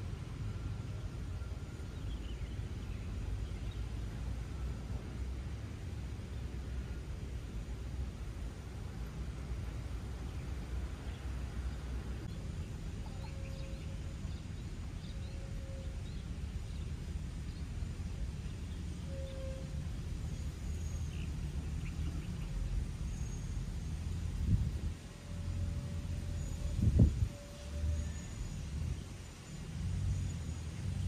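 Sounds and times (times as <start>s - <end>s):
faint bird chirps: 12.2s - 16.9s.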